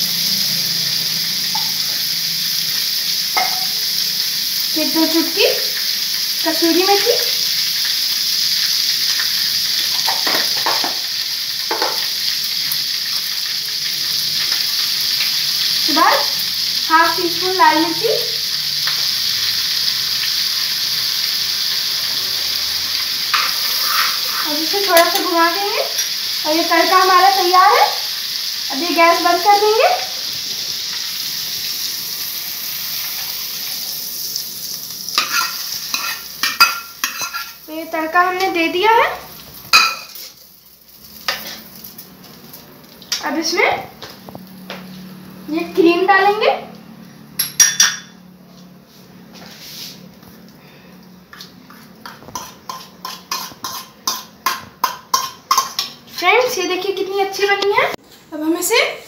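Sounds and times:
butter sizzling in a pan: 0:00.0 - 0:48.0, 0:51.4 - 0:58.8
metal spoon scraping a pan: 0:23.3 - 0:26.2, 0:35.2 - 0:37.6, 0:52.0 - 0:56.4.

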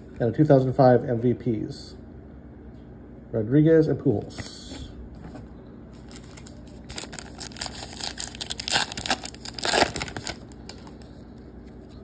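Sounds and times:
wrapper crinkling: 0:06.0 - 0:11.9.

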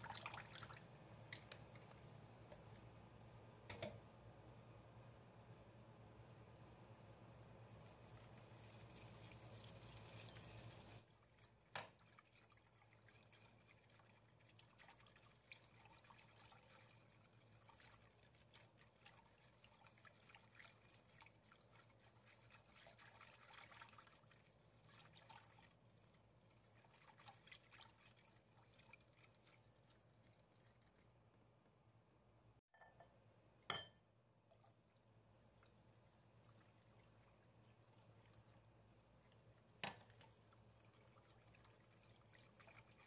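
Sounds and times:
whisking liquid in a bowl: 0:07.6 - 0:31.6, 0:34.5 - 0:43.0.

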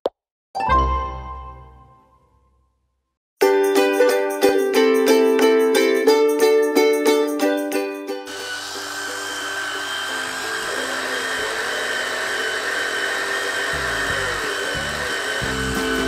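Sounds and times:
plucked ukulele music: 0:00.6 - 0:01.9, 0:03.4 - 0:08.3, 0:15.4 - 0:16.0
toy chainsaw buzzing: 0:08.2 - 0:16.0.

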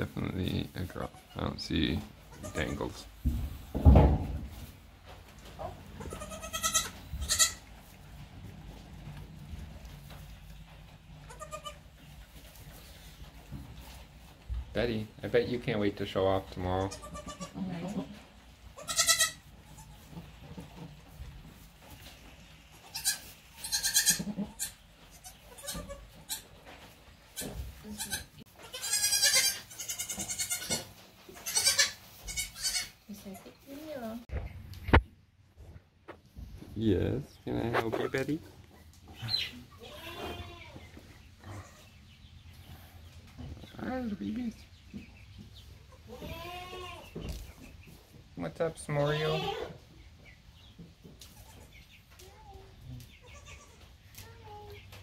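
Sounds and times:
goat bleating: 0:02.2 - 0:03.1, 0:05.8 - 0:07.7, 0:11.2 - 0:11.9, 0:16.8 - 0:20.1, 0:22.8 - 0:26.5, 0:27.4 - 0:33.0, 0:39.2 - 0:40.8, 0:45.9 - 0:47.1, 0:49.0 - 0:49.8, 0:53.2 - 0:53.9.

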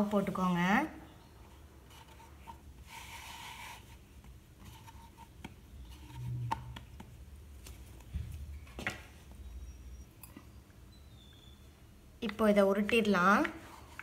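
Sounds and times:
soft rubbing of dough: 0:01.3 - 0:08.5.

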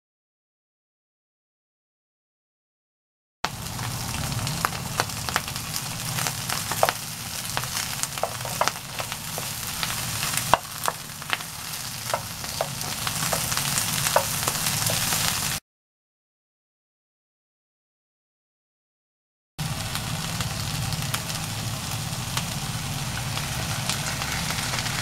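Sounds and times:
vegetables sizzling in oil: 0:03.5 - 0:15.6, 0:19.6 - 0:25.0
spatula tapping and scraping pan: 0:06.5 - 0:07.0, 0:07.6 - 0:15.4.

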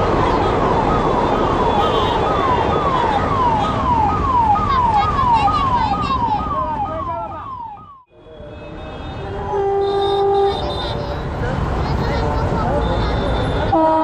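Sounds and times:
siren in falling sweeps: 0:00.1 - 0:08.1.

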